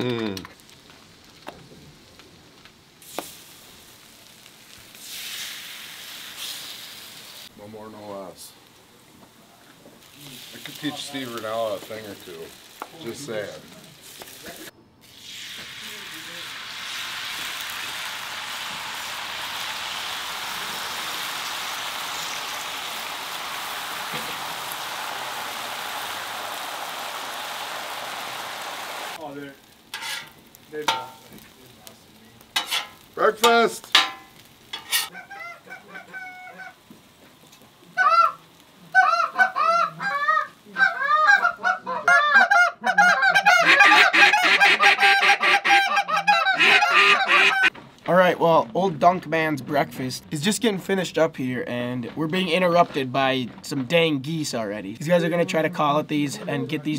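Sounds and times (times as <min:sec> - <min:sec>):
eggs sizzling on a griddle: 0:00.3 - 0:41.7
goose call honks: 0:39.0 - 0:47.7.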